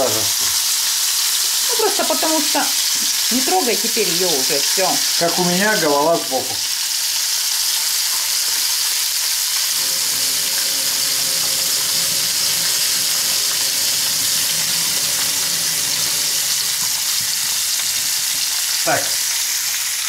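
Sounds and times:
fish sizzling in hot oil: 0.0s - 20.0s.

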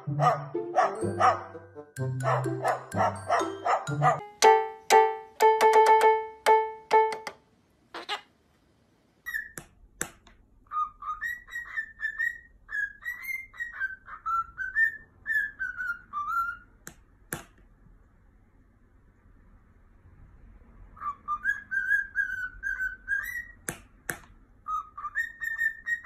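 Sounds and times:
piano note struck: 0.0s - 7.2s
cockatiel whistling: 9.3s - 9.6s, 10.7s - 16.7s, 21.0s - 23.6s, 24.6s - 26.0s.

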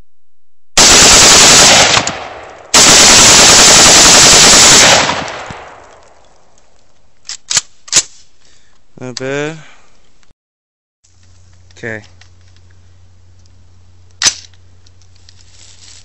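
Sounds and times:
rapid rifle shots: 0.8s - 6.0s
rifle handling clicks: 5.2s - 8.2s.

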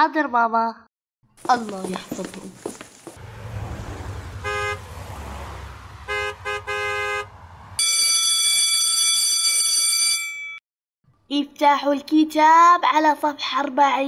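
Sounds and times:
car engines in traffic: 1.4s - 7.9s
car horn toots: 4.4s - 5.1s, 5.9s - 7.9s
electric school bell ringing: 7.8s - 10.6s.

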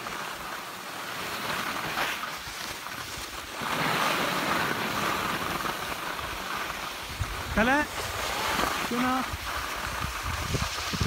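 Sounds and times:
skis sliding over snow: 0.0s - 11.0s
wind on microphone: 7.0s - 11.0s.

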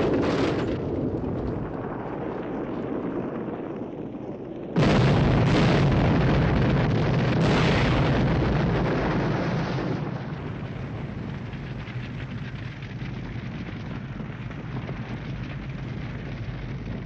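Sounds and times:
rumble of burning: 0.0s - 17.0s
car explosion blast: 4.8s - 13.6s.

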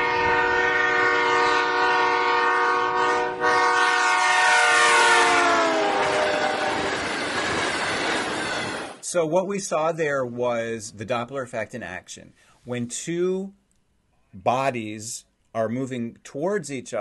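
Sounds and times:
train horn: 0.0s - 7.1s
passing train noise: 0.0s - 9.1s.

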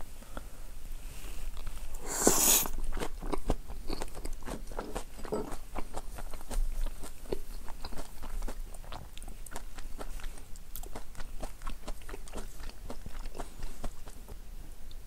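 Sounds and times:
wet chewing with mouth clicks: 1.5s - 15.0s
loud bite: 2.0s - 2.8s.

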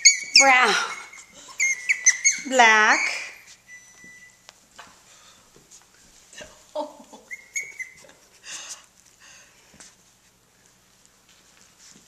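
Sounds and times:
puppies yipping and squeaking: 0.0s - 4.5s, 7.2s - 8.4s
light scuffling: 1.0s - 12.0s.

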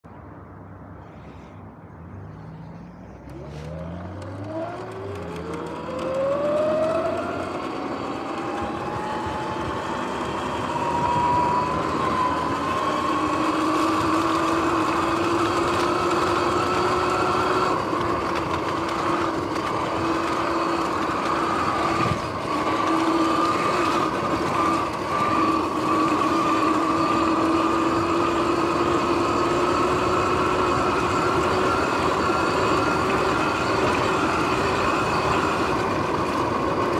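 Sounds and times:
electric motor whining: 3.2s - 36.9s
wind noise: 8.2s - 28.0s.

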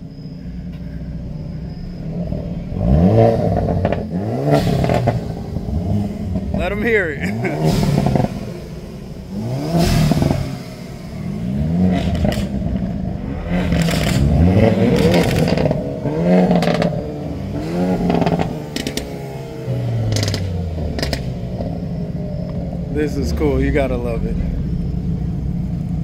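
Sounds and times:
car engine revving: 0.0s - 26.0s
exhaust pops: 3.3s - 21.8s.

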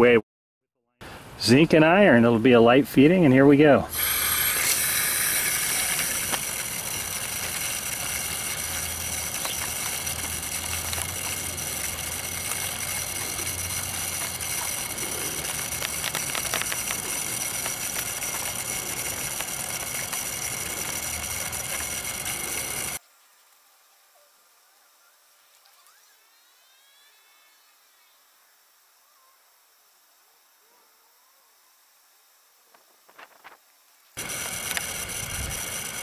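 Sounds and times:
water hissing through hose valve: 3.9s - 23.0s.

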